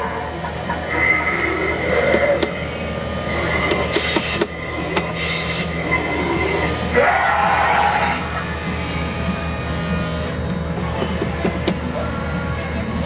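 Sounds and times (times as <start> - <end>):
grinding noise: 0.0 - 11.5
high screech: 5.2 - 8.6.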